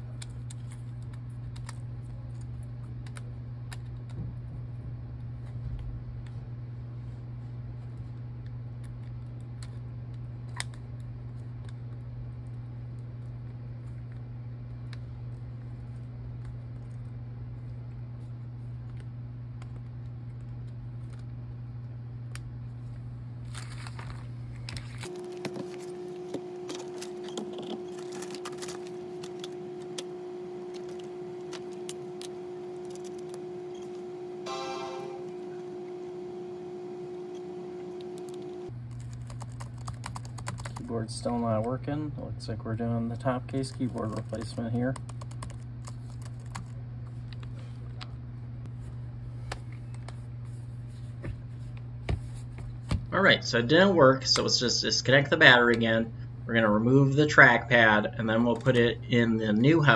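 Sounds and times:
steady low hum: 0.0 - 59.9
higher-pitched hum: 25.0 - 38.7.

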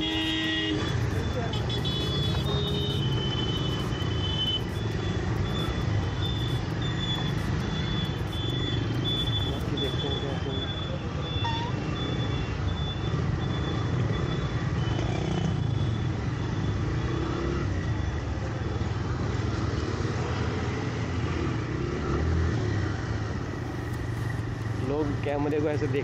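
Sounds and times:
short high beeps: 0.0 - 15.4
motorcycle engine and road rumble: 0.0 - 26.0.

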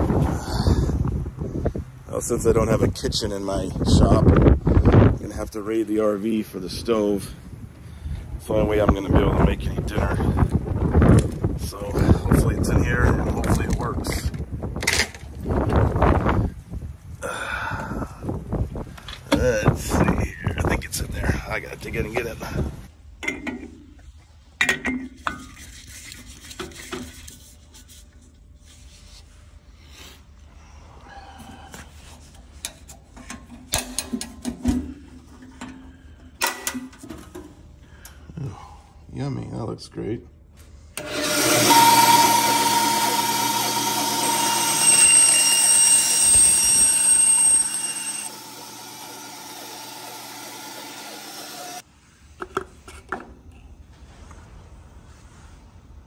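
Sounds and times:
rubbing and scraping: 25.2 - 30.4
bandsaw cutting paper cup: 41.0 - 51.8.

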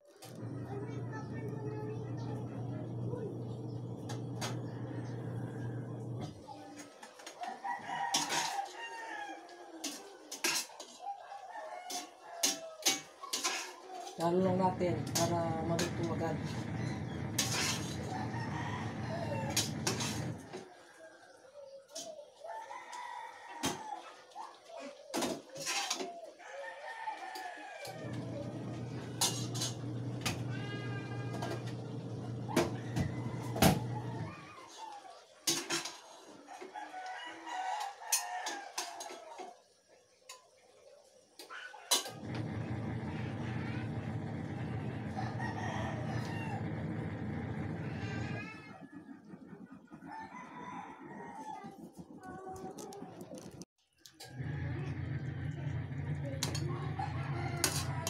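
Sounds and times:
rooster crowing: 3.7 - 6.8, 7.4 - 9.9, 11.0 - 13.1, 15.0 - 24.2, 26.2 - 34.6, 36.4 - 39.5, 41.9 - 49.0, 50.0 - 52.5, 54.2 - 58.0
chickens clucking: 14.7 - 43.8, 44.9 - 58.0
drawn-out animal call: 30.5 - 31.5.

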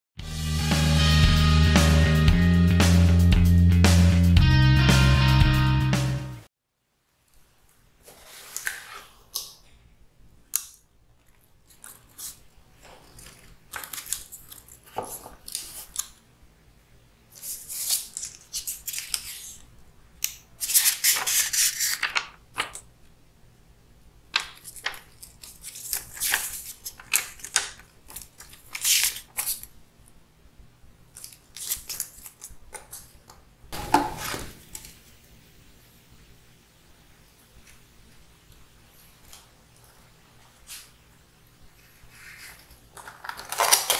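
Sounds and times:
cardboard and paper rustling: 8.0 - 9.2, 11.7 - 16.0, 20.6 - 22.8, 24.6 - 29.7, 41.8 - 43.9
pages flicking: 20.6 - 22.8, 24.6 - 29.7, 42.1 - 43.9.

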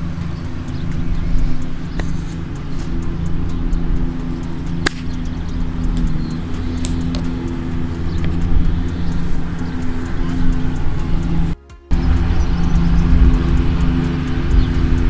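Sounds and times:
steady low hum: 0.0 - 15.0
golf club hitting ball: 4.1 - 8.4.

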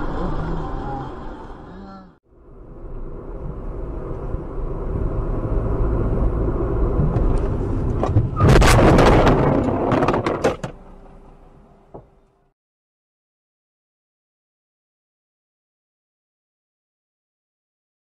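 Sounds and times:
car engine and road rumble: 0.0 - 12.5
vehicle collision bangs: 8.0 - 10.9.

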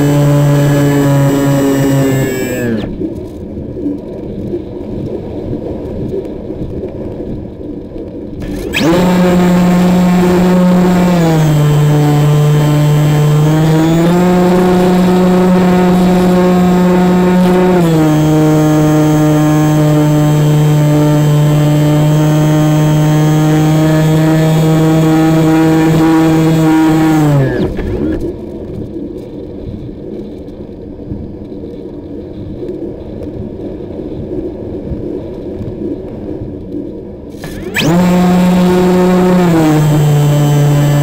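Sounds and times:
electric motor and propeller whine: 0.0 - 3.3, 8.4 - 28.4, 37.3 - 41.0.

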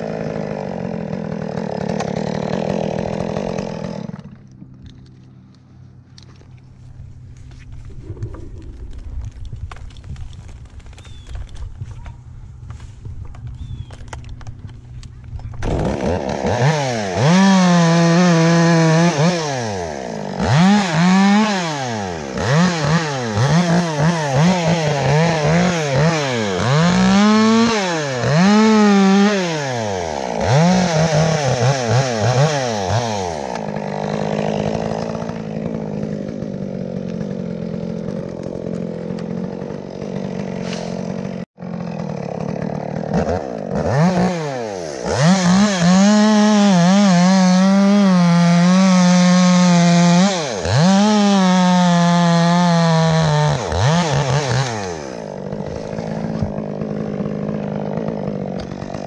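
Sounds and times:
chainsaw revving and cutting wood: 0.0 - 59.0.

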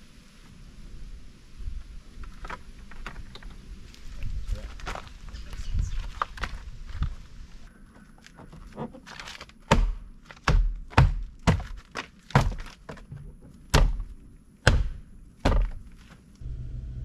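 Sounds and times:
door panel thumps: 14.6 - 15.8.

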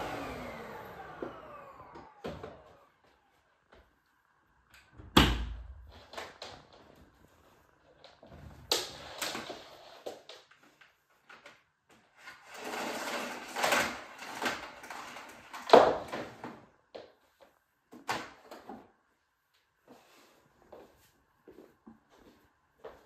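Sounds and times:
cord rubbing and scraping: 5.9 - 11.2, 11.9 - 16.4.

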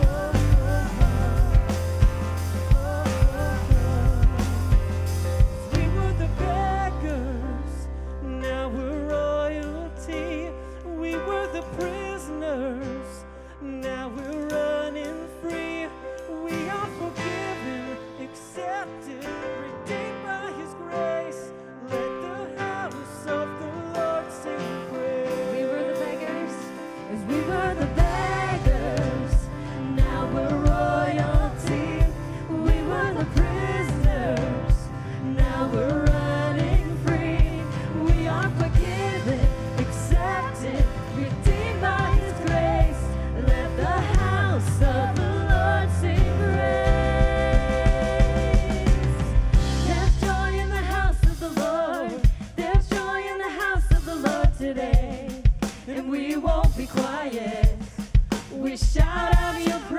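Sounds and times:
drums: 0.0 - 7.8, 11.1 - 13.2, 13.8 - 21.4, 22.0 - 59.9
bass guitar: 0.0 - 18.3, 25.0 - 53.1
person singing: 0.0 - 57.9
acoustic guitar: 0.0 - 59.9
keyboard: 0.0 - 59.9.

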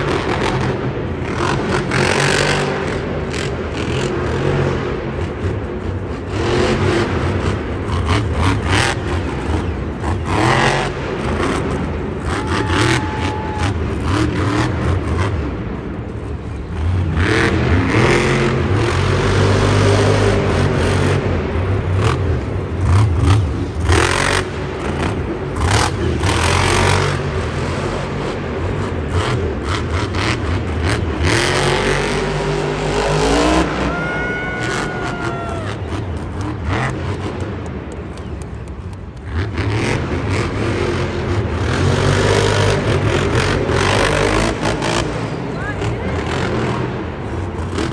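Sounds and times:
truck engine revving: 0.0 - 47.9.

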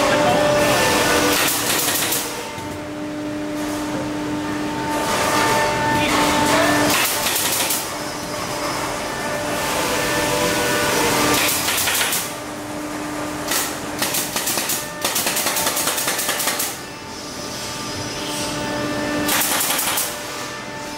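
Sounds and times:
nail gun firing into wood: 1.3 - 2.3, 6.9 - 7.8, 11.4 - 12.3, 13.5 - 16.8, 19.2 - 20.2.

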